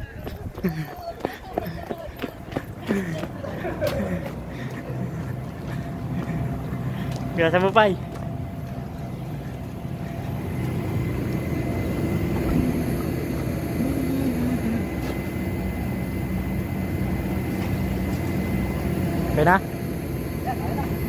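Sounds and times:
faint steady whine: 0:00.0 - 0:21.0
steady low rumble: 0:00.0 - 0:21.0
faint voice: 0:13.8 - 0:15.1.

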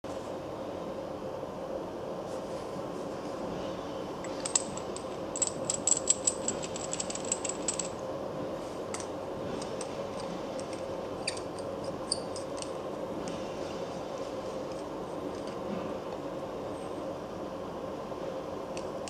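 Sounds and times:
steady background hum: 0:00.0 - 0:19.0
metal parts clicking and scraping: 0:04.2 - 0:08.0, 0:08.9 - 0:12.8, 0:14.6 - 0:15.7.

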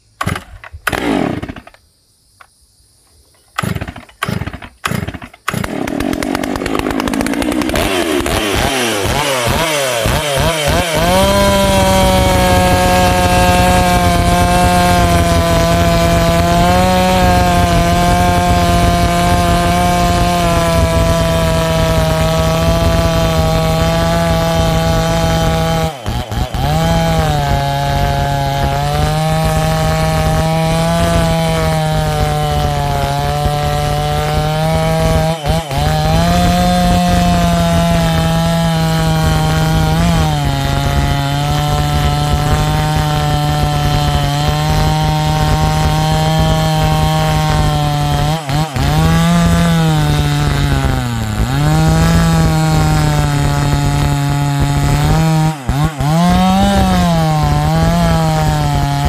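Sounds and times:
chainsaw cutting log: 0:00.2 - 0:01.8, 0:03.6 - 0:59.0
chainsaw engine revving: 0:00.2 - 0:01.8, 0:03.6 - 0:59.0
chainsaw starter cord pulls: 0:03.6 - 0:15.0.

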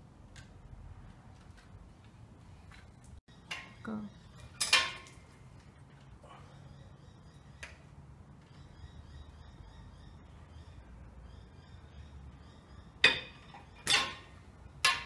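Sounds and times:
small birds chirping: 0:03.0 - 0:14.8.

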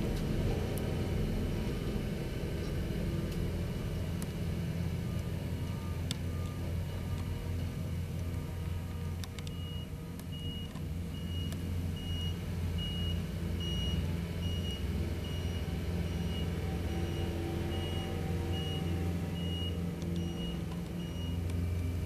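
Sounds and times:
diesel engine droning: 0:00.0 - 0:22.0
reversing alarm beeping: 0:05.0 - 0:08.0, 0:09.4 - 0:22.0.

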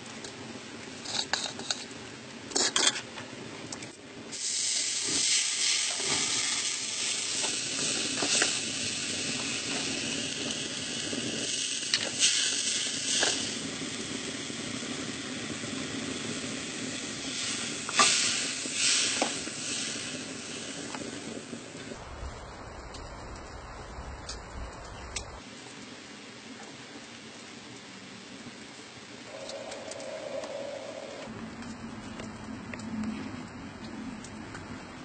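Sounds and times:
liquid sizzling in a hot pan: 0:04.3 - 0:21.8.

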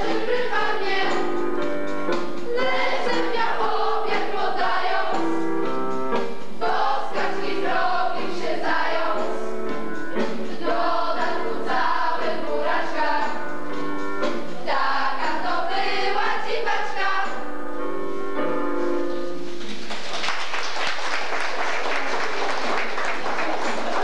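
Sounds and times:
young voices singing with music: 0:00.0 - 0:18.3
audience applause: 0:19.5 - 0:24.0.

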